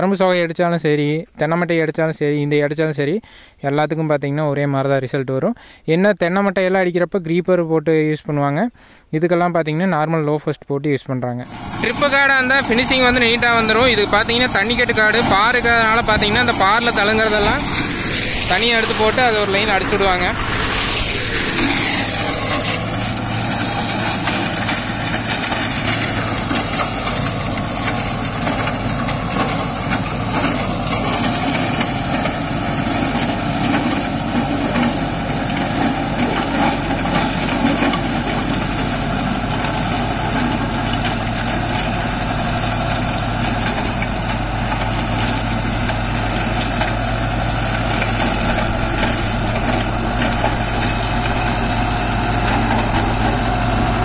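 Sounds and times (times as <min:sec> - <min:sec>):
flail shredder chopping stalks: 0:11.4 - 0:54.0
tractor diesel engine running: 0:11.4 - 0:54.0.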